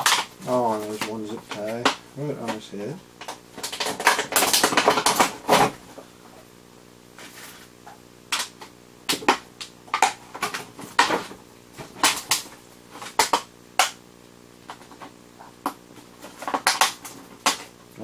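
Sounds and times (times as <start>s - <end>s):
plastic packaging crackling: 3.2s - 5.7s.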